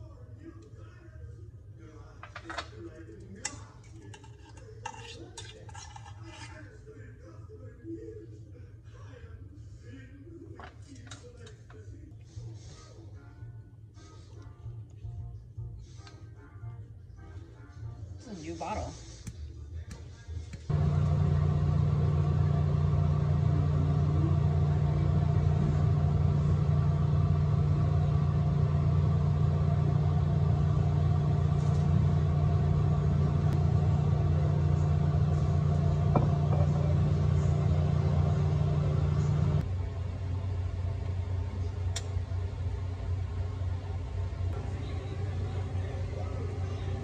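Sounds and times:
low machine hum: 0:20.6 - 0:47.0.

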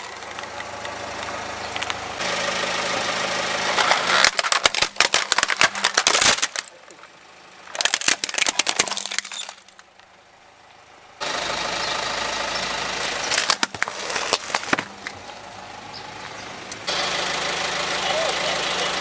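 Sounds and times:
plastic toy cracking under tyre: 0:03.7 - 0:06.8, 0:07.7 - 0:10.0, 0:13.2 - 0:15.2.

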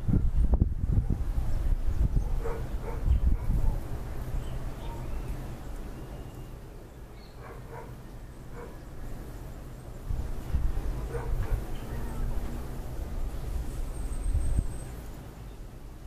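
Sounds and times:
wind rumble on microphone: 0:00.0 - 0:05.9, 0:08.5 - 0:16.0
dog barking: 0:02.2 - 0:03.8, 0:07.4 - 0:08.8, 0:11.1 - 0:11.7.

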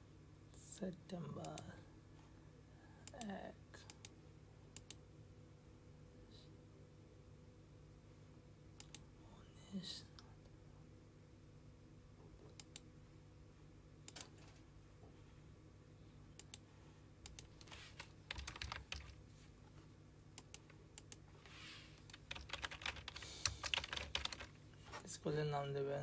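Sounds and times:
faint low steady hum: 0:00.0 - 0:26.0
mouse clicks: 0:08.8 - 0:09.0, 0:12.5 - 0:12.8, 0:16.4 - 0:16.6
computer keyboard typing: 0:17.3 - 0:19.2, 0:22.1 - 0:24.5.

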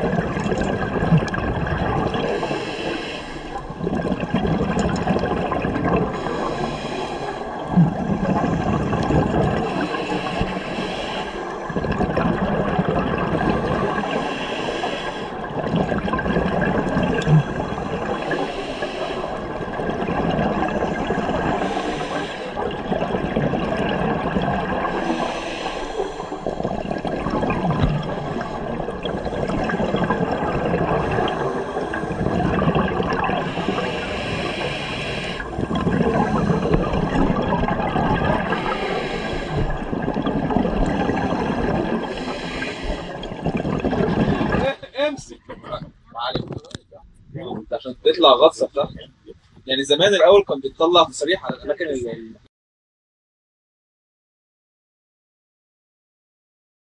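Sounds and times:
exhaled bubbles rushing: 0:00.0 - 0:46.6
regulator hissing inhale: 0:02.2 - 0:03.8, 0:06.1 - 0:07.6, 0:09.6 - 0:11.7, 0:14.0 - 0:15.4, 0:18.0 - 0:19.5, 0:20.8 - 0:22.6, 0:24.9 - 0:26.8, 0:31.0 - 0:32.2, 0:33.4 - 0:37.0, 0:38.4 - 0:39.9, 0:41.0 - 0:43.3.

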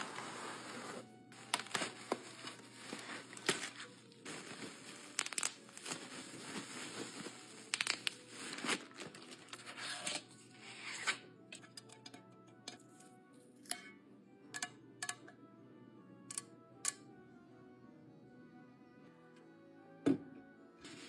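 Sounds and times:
plastic bag crinkling: 0:00.0 - 0:09.7
bubble wrap rustling: 0:00.0 - 0:10.2.

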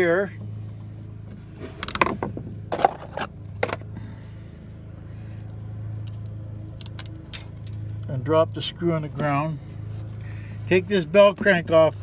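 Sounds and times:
steady low hum: 0:00.0 - 0:12.0
latch parts clicking and scraping: 0:01.6 - 0:03.9.

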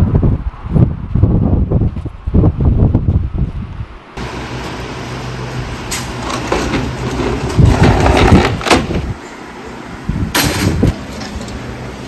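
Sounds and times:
furniture scraping on brick paving: 0:06.1 - 0:09.1.

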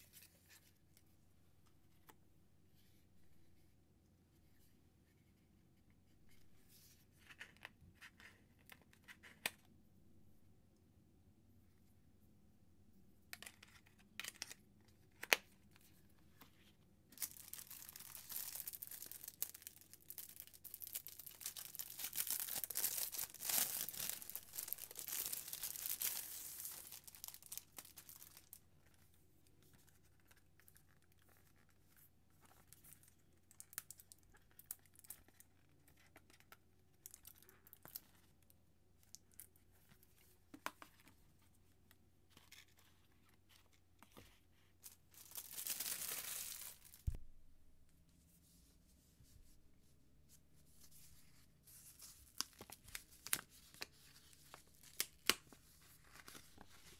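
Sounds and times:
plastic shrink wrap tearing: 0:17.2 - 0:28.6, 0:45.2 - 0:47.1.

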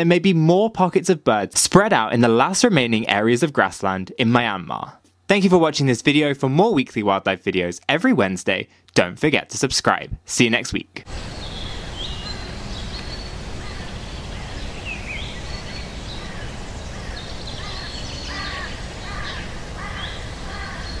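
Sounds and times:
outdoor background hiss: 0:00.0 - 0:21.0
wild birds calling: 0:11.1 - 0:21.0.

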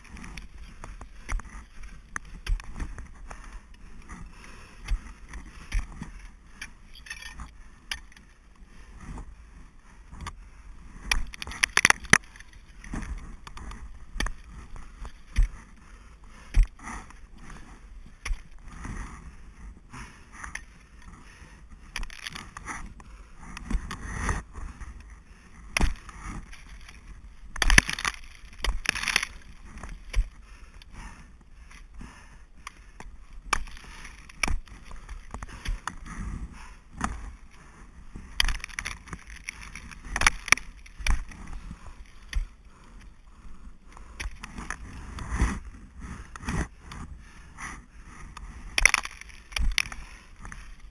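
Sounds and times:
rustling of gear and clothing: 0:00.0 - 0:50.9
ice axe striking ice: 0:11.1 - 0:12.5, 0:22.0 - 0:22.6, 0:25.7 - 0:30.4, 0:33.4 - 0:35.9, 0:38.3 - 0:41.6, 0:48.8 - 0:50.6.

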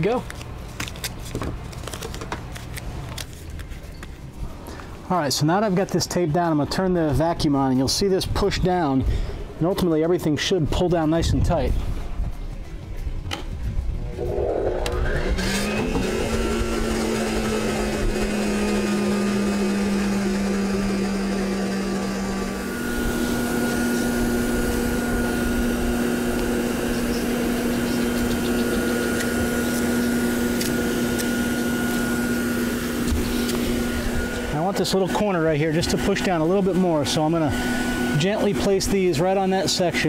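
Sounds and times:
vacuum cleaner motor humming: 0:14.0 - 0:39.1.

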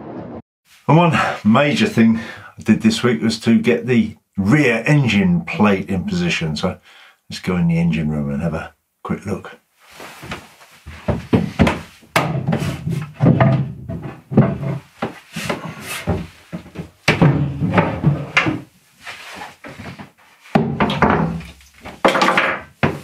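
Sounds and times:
wooden knocks and thumps: 0:10.2 - 0:18.7, 0:19.4 - 0:23.0.

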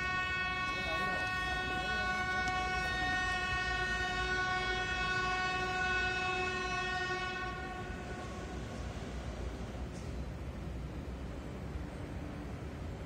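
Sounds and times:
train horn long blast: 0:00.0 - 0:08.9.

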